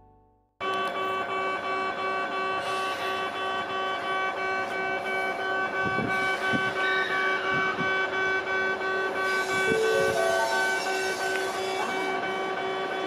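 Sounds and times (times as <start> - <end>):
electric train whine: 0.7 - 13.0
tone rising in steps: 9.7 - 11.2.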